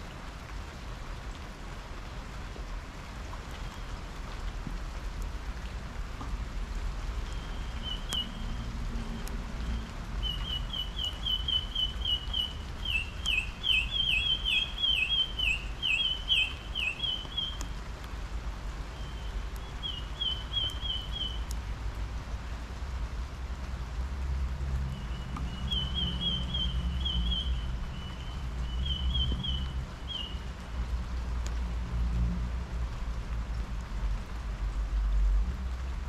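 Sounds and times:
rain falling: 0:00.0 - 0:36.0
sharp drips: 0:03.1 - 0:36.0
songbird chirping: 0:07.2 - 0:17.7, 0:18.9 - 0:21.6, 0:24.9 - 0:30.5.

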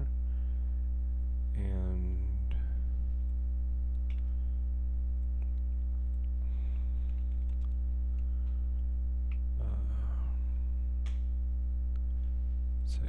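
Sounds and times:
low electrical hum: 0:00.0 - 0:13.0
keyboard and mouse clicks: 0:07.1 - 0:07.8.

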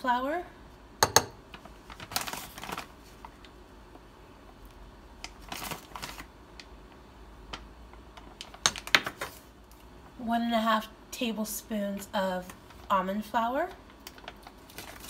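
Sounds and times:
metal spoon tapping a bowl: 0:01.0 - 0:01.4.

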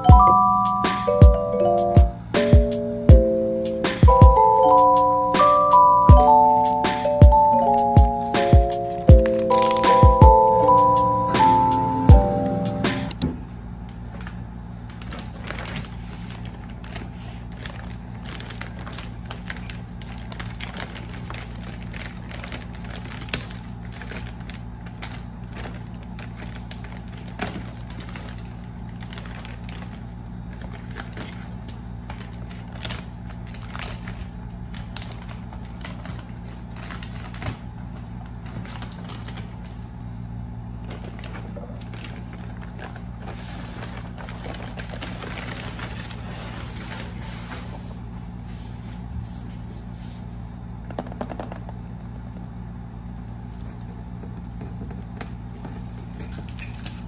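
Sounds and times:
plastic bag crinkling: 0:07.4 - 0:10.8, 0:14.0 - 0:40.0, 0:40.8 - 0:48.1.

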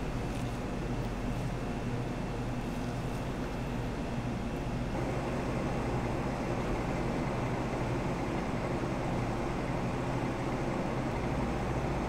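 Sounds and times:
background hum and rumble: 0:00.0 - 0:12.0.

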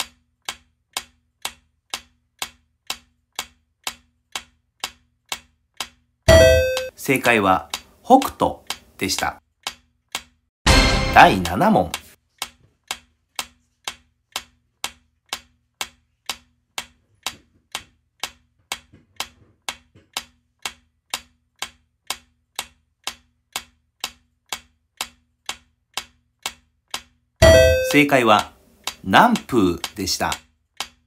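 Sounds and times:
clock ticking: 0:00.0 - 0:31.0.

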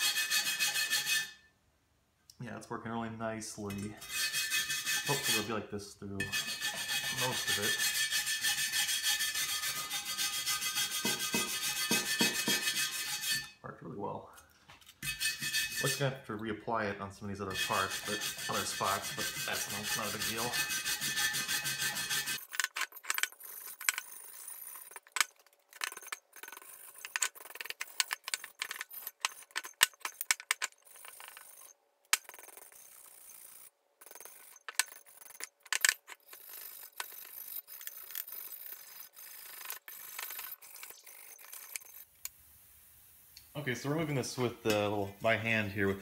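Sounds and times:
wire brush scrubbing metal: 0:00.0 - 0:01.4, 0:03.7 - 0:05.6, 0:06.2 - 0:13.6, 0:15.0 - 0:16.2, 0:17.4 - 0:42.1.

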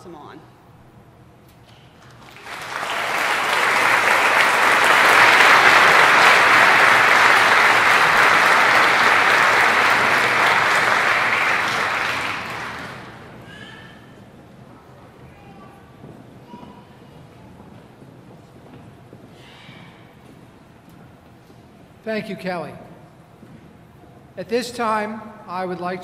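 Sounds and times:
audience applauding: 0:02.0 - 0:13.4.

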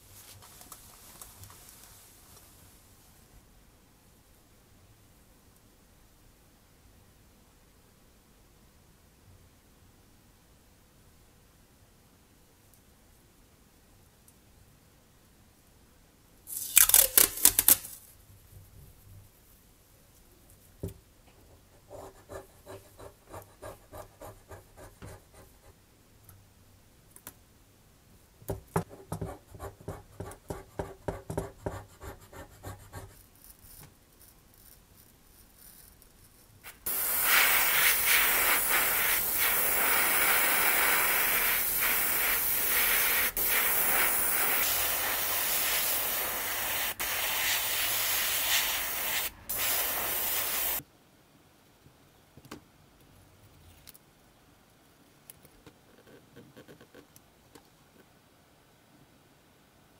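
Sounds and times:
scalpel cutting tape: 0:16.5 - 0:18.0
airbrush spraying hiss: 0:36.6 - 0:50.8.

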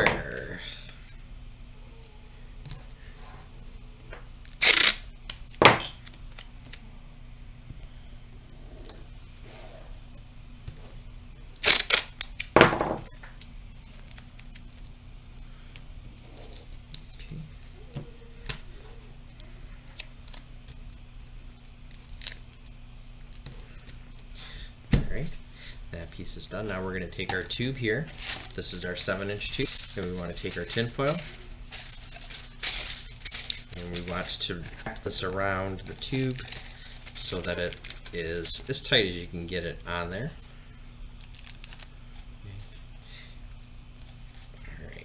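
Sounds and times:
masking tape ripping: 0:04.4 - 0:06.8, 0:11.5 - 0:12.6, 0:27.2 - 0:39.2
foil and paper crinkling: 0:26.0 - 0:40.5, 0:41.2 - 0:45.0.

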